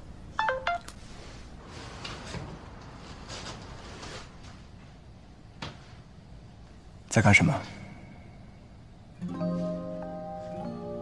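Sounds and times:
phone notification chime: 0.4s - 0.9s.

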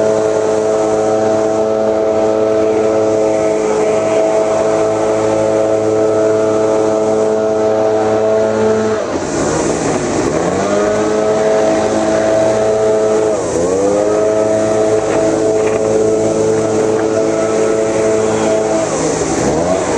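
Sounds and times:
leaf blower engine running: 0.0s - 19.9s
rushing air hiss: 0.0s - 19.9s.

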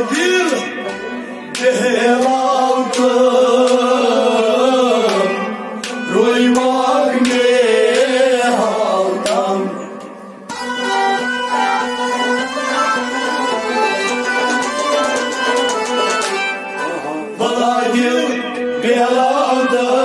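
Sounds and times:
man singing: 0.0s - 10.1s, 16.8s - 20.0s
bowed string instrument: 0.0s - 20.0s
harmonium: 0.0s - 20.0s
sharp percussive strikes: 5.0s - 8.4s.

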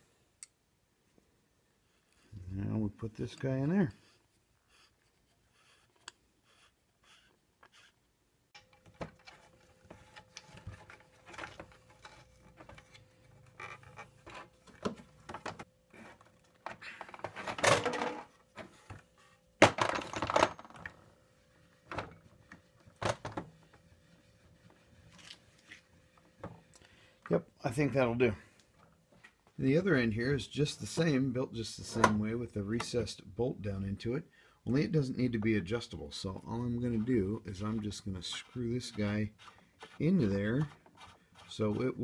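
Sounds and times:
wood knocking and scraping on wood: 8.6s - 19.1s.

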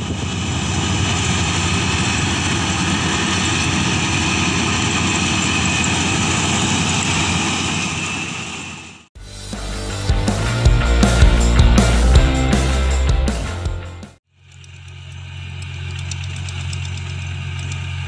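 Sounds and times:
combine harvester engine din: 0.0s - 9.0s
music: 9.2s - 14.2s.

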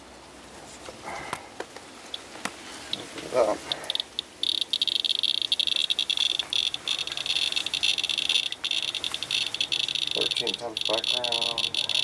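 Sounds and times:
geiger counter chirping rapidly: 3.7s - 12.0s.

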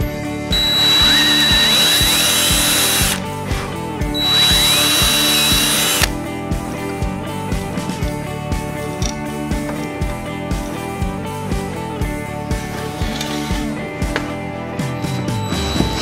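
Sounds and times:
guitar music with steady beat: 0.0s - 16.0s
cordless drill boring into wood: 0.5s - 3.2s, 4.2s - 6.1s.

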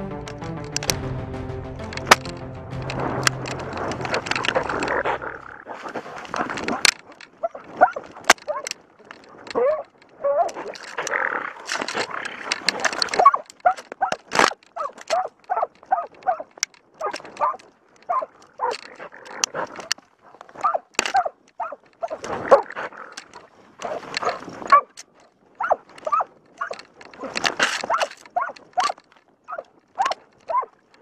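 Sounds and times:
sharp knock: 0.1s - 5.1s
brush scraping: 2.9s - 8.0s
dog barking rapidly: 7.4s - 8.7s, 13.2s - 14.2s, 14.8s - 18.8s, 20.6s - 22.8s, 23.8s - 25.0s, 25.6s - 26.8s, 27.8s - 30.7s.

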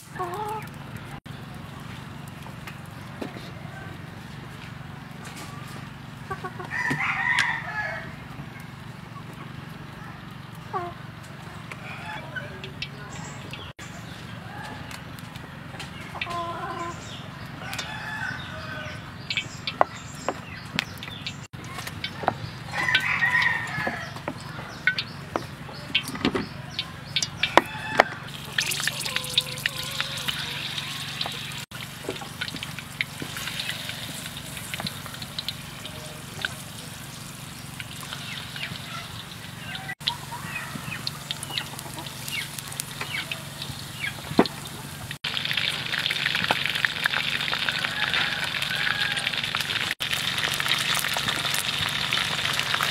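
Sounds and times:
chickens clucking: 0.0s - 1.2s, 4.8s - 45.2s
food deep-frying in hot oil: 24.8s - 52.9s.

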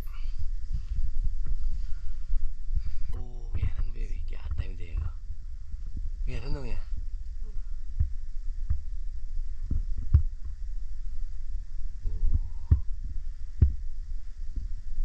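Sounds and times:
low rumble: 0.0s - 15.0s
dull thumps: 0.6s - 14.9s.

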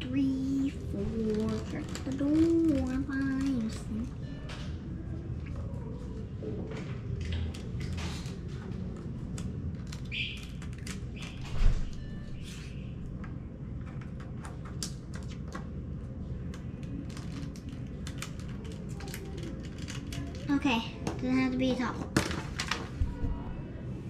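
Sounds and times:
plastic toy pieces clicking: 16.8s - 20.5s.

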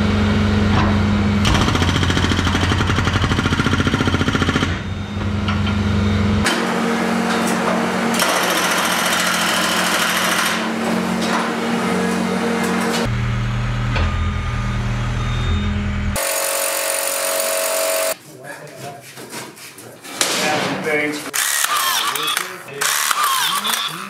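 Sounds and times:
engine running: 0.0s - 18.2s
hydraulic breaker hammering concrete: 0.8s - 4.9s, 7.6s - 10.8s, 16.2s - 18.2s, 21.3s - 23.9s.

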